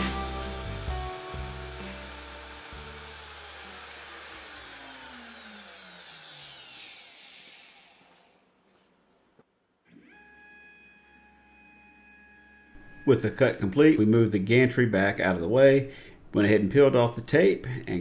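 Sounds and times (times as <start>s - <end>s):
router spindle whine spinning down: 0.0s - 8.4s, 9.9s - 14.1s.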